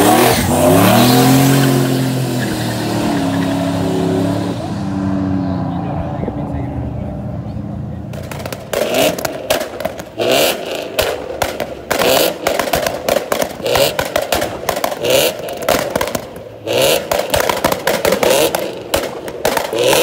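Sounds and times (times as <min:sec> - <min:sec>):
car engine revving: 0:00.0 - 0:20.0
exhaust crackling pops: 0:08.0 - 0:20.0.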